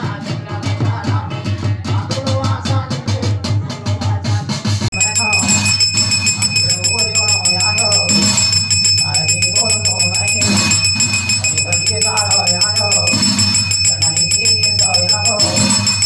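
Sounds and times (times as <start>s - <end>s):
man singing: 0.0s - 5.5s
brass plate beaten: 4.9s - 16.0s
hand bell ringing: 4.9s - 16.0s.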